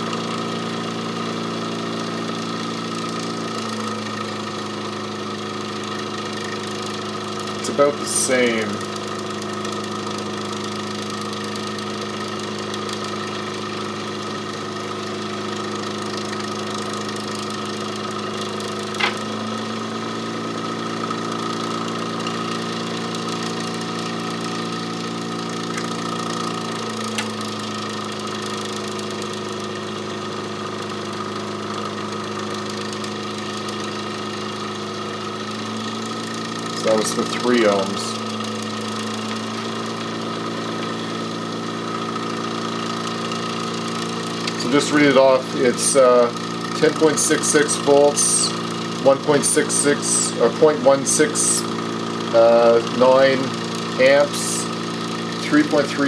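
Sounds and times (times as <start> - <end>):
electric motor humming: 0.0 - 56.0.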